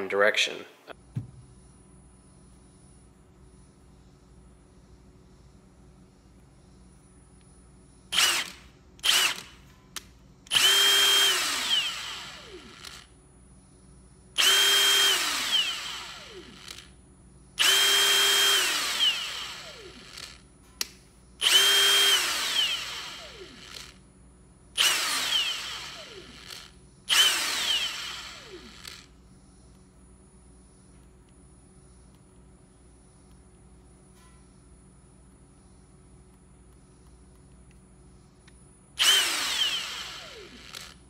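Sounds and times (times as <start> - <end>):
impact wrench motor whining: 8.1 - 9.6, 10.5 - 13.1, 14.4 - 16.9, 17.6 - 20.4, 21.4 - 24.0, 24.8 - 29.1, 39.0 - 41.0.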